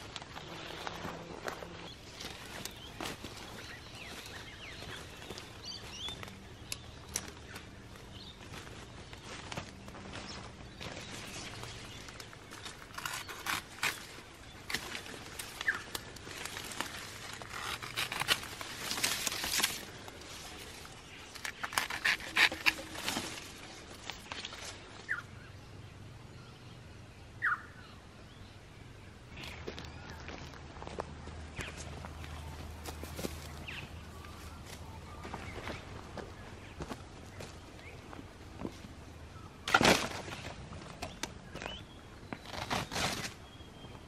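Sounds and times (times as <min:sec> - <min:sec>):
dry leaves and twigs crackling: 0:00.0 - 0:25.3, 0:29.3 - 0:44.0
rising bird chirps: 0:27.4 - 0:28.0.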